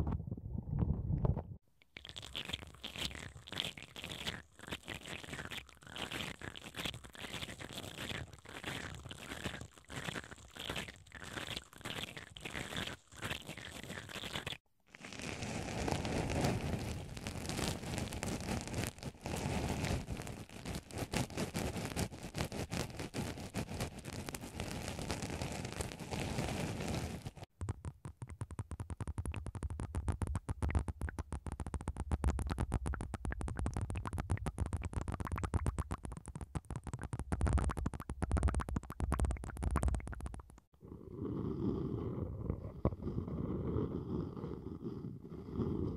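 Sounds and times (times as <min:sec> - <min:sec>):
crackling on microphone: 0:00.0 - 0:45.9
swab scraping foam: 0:02.2 - 0:27.5, 0:41.2 - 0:45.9
brush scratching: 0:15.0 - 0:27.5, 0:42.4 - 0:45.9.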